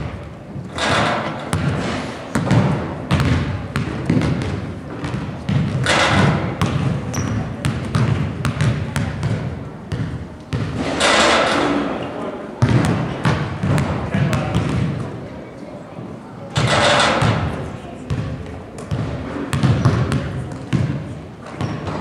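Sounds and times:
basketball bouncing on wooden floor: 0.8 - 10.8, 12.6 - 15.0, 16.6 - 17.5, 18.1 - 21.0.

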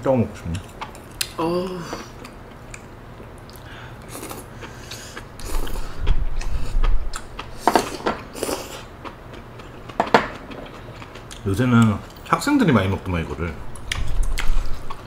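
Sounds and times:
chewing: 2.2 - 12.2.

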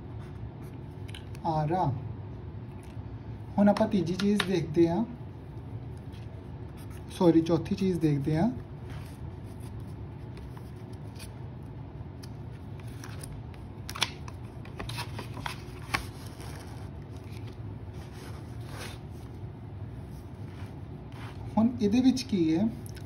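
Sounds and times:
steady low hum: 0.0 - 23.0
paper rustling: 12.2 - 19.4.

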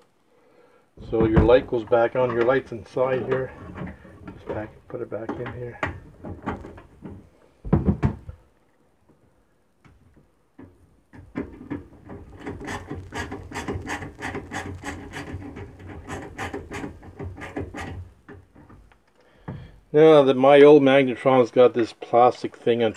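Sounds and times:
screwdriver rasping screw: 12.3 - 18.0.

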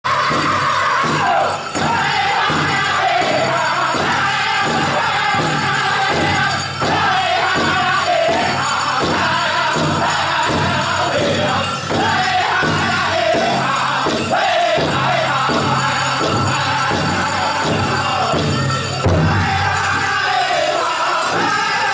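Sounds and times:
group singing in high voices: 0.0 - 21.9
steady drumbeat on large drum: 0.1 - 20.3
bells jingling: 0.1 - 21.9.

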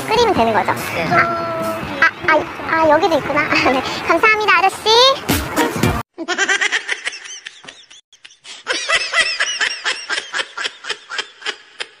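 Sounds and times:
high-pitched laughter: 6.2 - 12.0.

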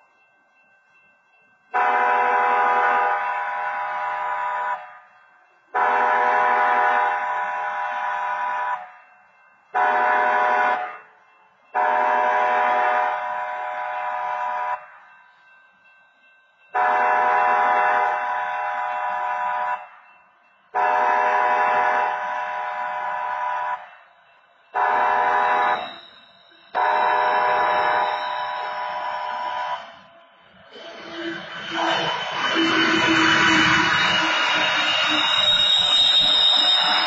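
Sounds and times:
locomotive air horn blasts: 1.8 - 4.8, 5.8 - 8.8, 9.8 - 11.0, 11.8 - 14.8, 16.8 - 19.8, 20.8 - 23.9, 24.8 - 25.9, 26.8 - 28.0.

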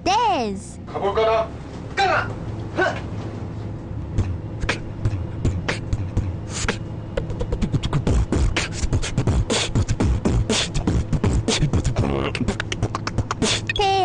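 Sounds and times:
person beatboxing: 4.1 - 14.0.

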